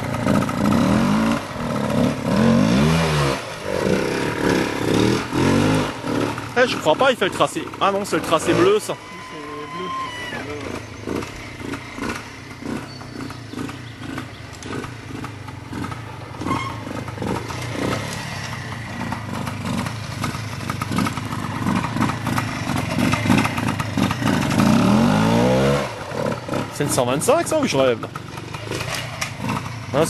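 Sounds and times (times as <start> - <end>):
motorcycle engine revving: 0.0 - 30.0.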